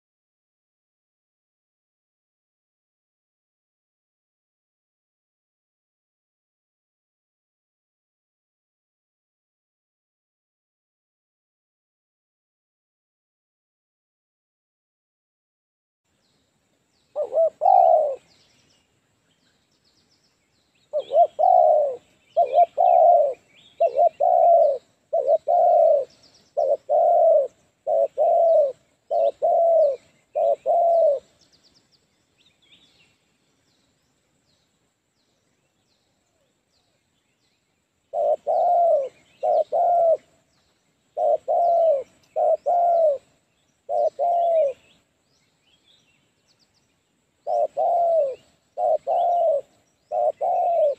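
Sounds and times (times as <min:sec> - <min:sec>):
small birds chirping: 0:16.1 - 0:50.9
dove cooing: 0:17.1 - 0:18.3, 0:20.9 - 0:31.4, 0:38.1 - 0:40.4, 0:41.1 - 0:45.0, 0:47.4 - 0:50.9.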